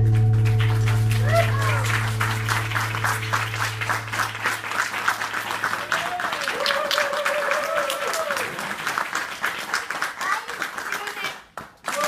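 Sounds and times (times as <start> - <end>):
low note: 0.0 - 6.2
audience applauding: 0.0 - 12.0
long held call: 0.7 - 8.6.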